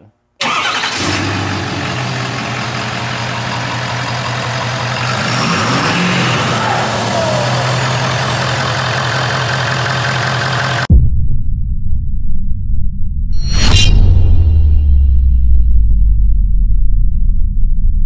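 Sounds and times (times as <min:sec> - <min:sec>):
diesel engine idling and revving: 0:00.4 - 0:10.9.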